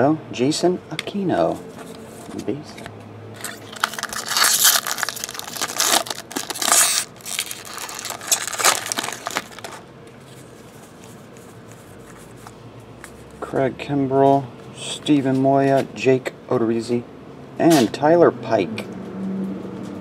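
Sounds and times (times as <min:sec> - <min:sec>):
foil wrappers crinkling: 0:03.4 - 0:09.8.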